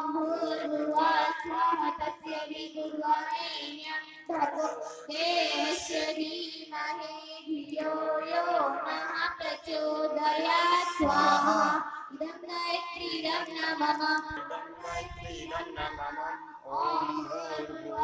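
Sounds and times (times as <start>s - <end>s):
high-pitched voice singing: 0.0s - 18.0s.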